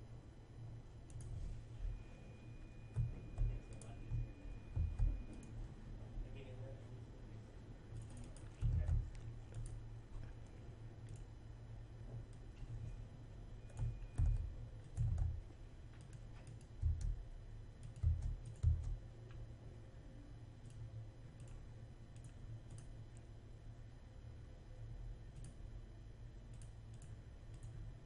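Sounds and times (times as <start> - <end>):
keyboard typing: 1.0 - 2.0, 2.8 - 5.6, 7.9 - 10.3, 13.6 - 17.2, 17.8 - 19.0, 20.6 - 22.9.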